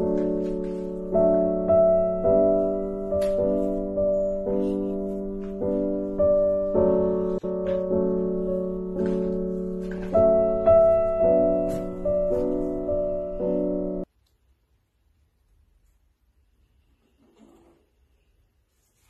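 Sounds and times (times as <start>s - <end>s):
soft piano chords: 0.0s - 14.1s.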